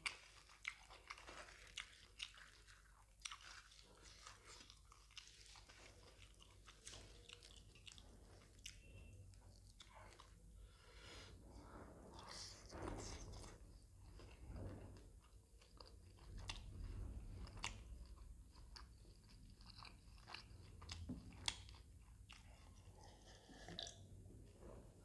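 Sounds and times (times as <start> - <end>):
crunching food: 0.0 - 8.9, 17.4 - 24.0
chewing with wet mouth clicks: 0.0 - 10.6, 15.2 - 16.7, 17.4 - 24.1.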